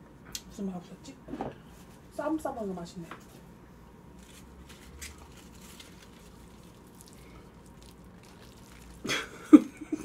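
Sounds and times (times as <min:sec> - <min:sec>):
lettuce leaves being handled: 0:04.2 - 0:09.1.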